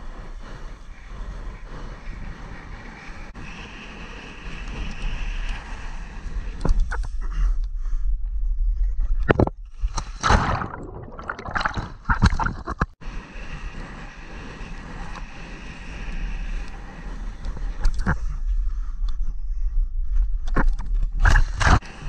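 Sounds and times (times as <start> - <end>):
wind buffeting microphone: 0.0 - 9.1
water splashing and churning: 9.4 - 13.0.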